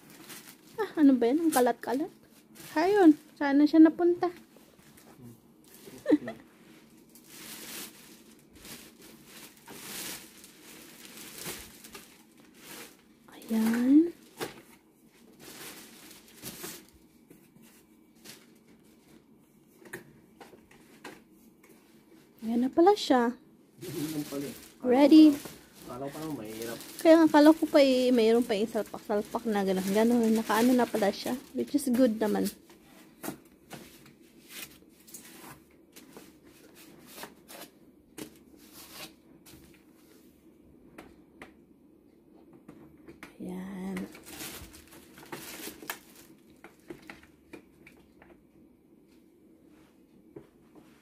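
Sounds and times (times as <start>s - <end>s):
packaging rustling: 0.0s - 3.4s, 6.8s - 17.1s, 23.8s - 32.6s, 44.1s - 47.4s.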